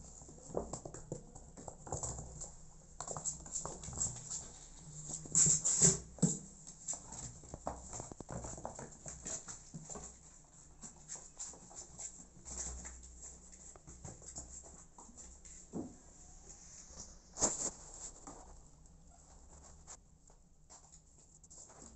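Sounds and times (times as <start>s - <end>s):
kittens scampering on cardboard: 0.1s - 15.5s.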